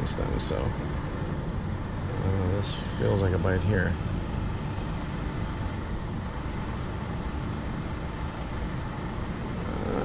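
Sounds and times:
low rumble of road traffic: 0.0s - 10.0s.

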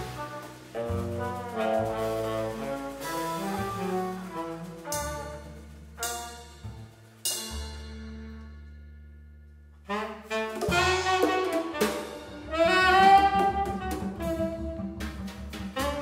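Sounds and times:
tenor saxophone: 0.0s - 5.6s, 9.8s - 15.0s, 15.7s - 16.0s
trumpet: 0.0s - 6.8s, 9.9s - 16.0s
drum kit: 0.0s - 8.3s, 9.9s - 16.0s
double bass note: 0.0s - 16.0s.

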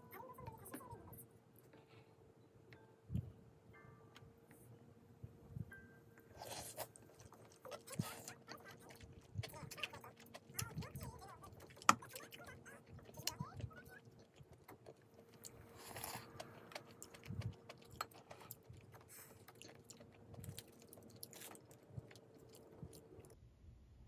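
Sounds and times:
faint steady hum: 0.0s - 24.0s
quiet chewing: 6.2s - 23.4s.

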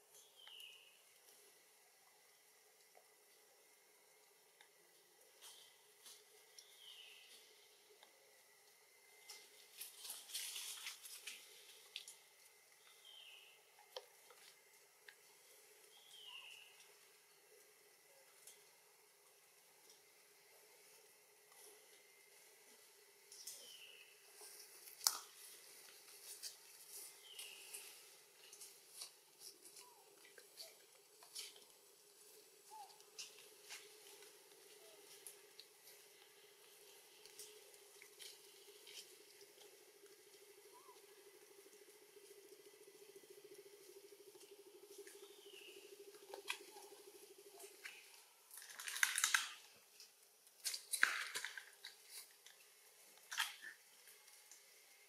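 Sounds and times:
leaves and twigs rustling and snapping: 4.6s - 20.2s, 22.6s - 54.8s.

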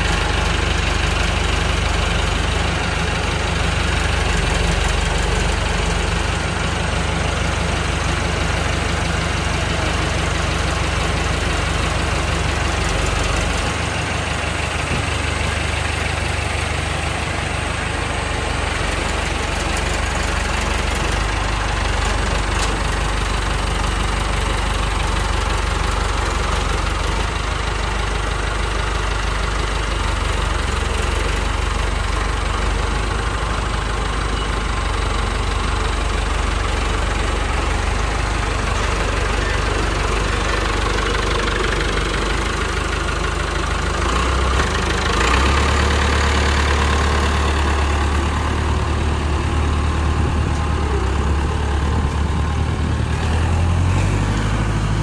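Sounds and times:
tractor diesel engine running: 0.0s - 55.0s.

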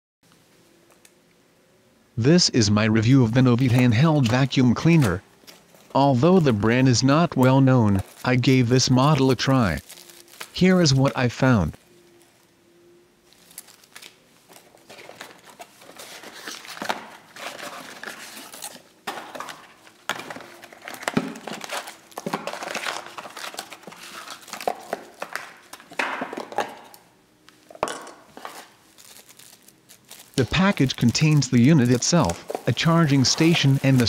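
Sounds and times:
cardboard and paper rustling: 3.1s - 11.2s, 13.3s - 26.9s, 28.3s - 34.0s
cardboard pieces knocking: 19.1s - 26.9s.

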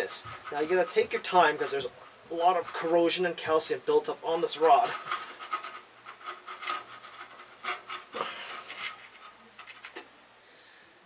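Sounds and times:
metal rod scraping: 0.0s - 3.2s, 4.5s - 10.0s.

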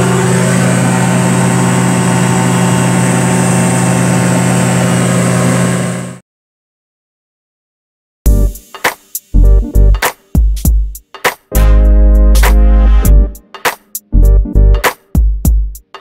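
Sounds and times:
propeller aircraft engine droning: 0.0s - 6.2s.

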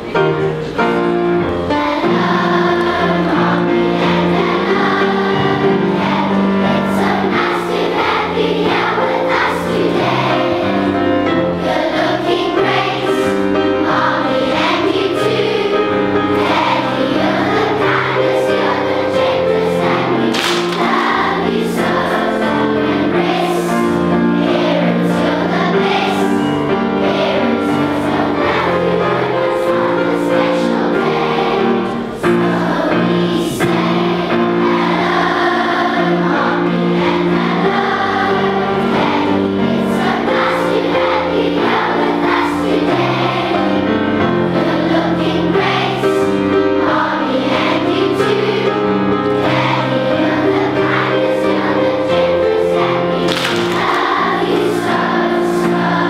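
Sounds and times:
children's choir singing: 0.0s - 56.0s
instrumental accompaniment: 0.0s - 56.0s.

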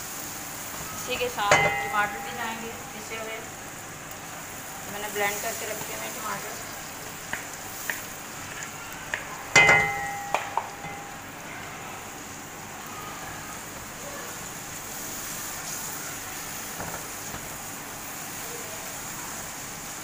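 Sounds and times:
metallic clang: 1.4s - 3.6s, 9.5s - 11.3s.

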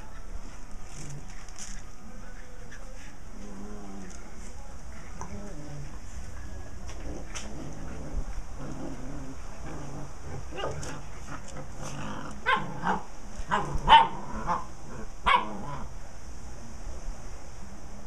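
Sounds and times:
dogs barking and yipping: 12.4s - 14.7s, 15.3s - 15.7s.

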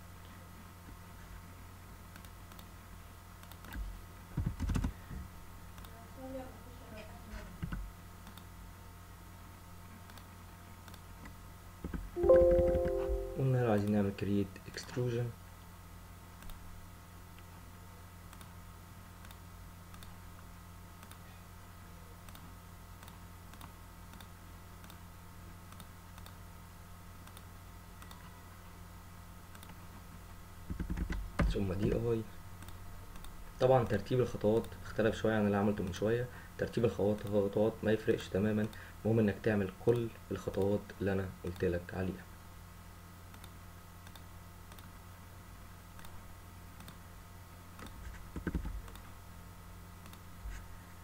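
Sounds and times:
low electrical hum: 0.0s - 51.0s
computer mouse clicks: 2.1s - 2.7s, 3.4s - 3.8s, 7.7s - 8.5s, 10.1s - 11.0s, 18.3s - 18.5s, 19.2s - 20.2s, 21.0s - 21.2s, 22.2s - 25.0s, 25.7s - 26.4s, 27.2s - 28.2s, 29.5s - 29.8s, 43.3s - 45.0s, 46.8s - 47.0s, 47.8s - 49.1s, 50.0s - 50.2s.

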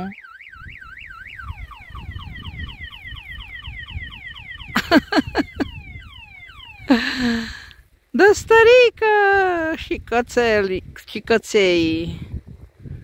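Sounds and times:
car alarm siren chirping: 0.0s - 7.0s
low wind rumble: 0.0s - 13.0s.

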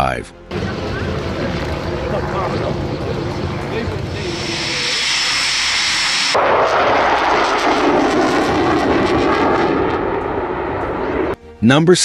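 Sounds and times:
jet engine whine and roar: 0.5s - 11.4s.

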